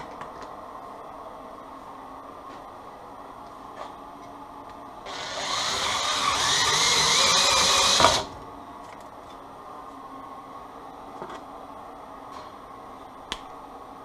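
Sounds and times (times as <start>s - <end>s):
cordless drill whine: 5.0s - 8.4s.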